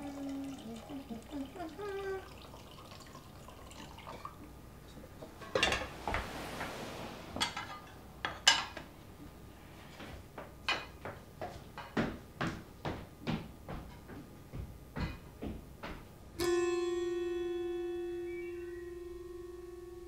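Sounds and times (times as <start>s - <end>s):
soft hiss: 0.0s - 10.3s
crockery and cutlery clinking: 5.1s - 8.9s
footsteps on tiled floor: 9.8s - 16.1s.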